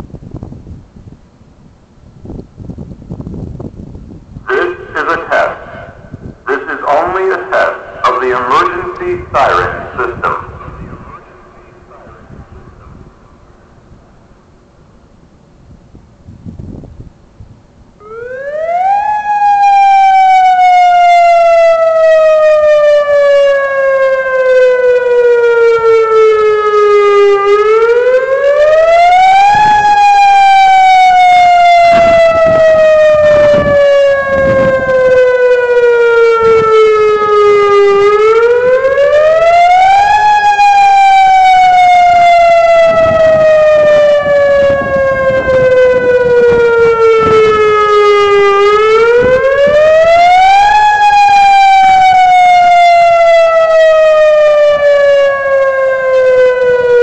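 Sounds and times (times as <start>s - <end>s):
warning siren wailing: 4.5s - 14.9s, 17.9s - 57.0s.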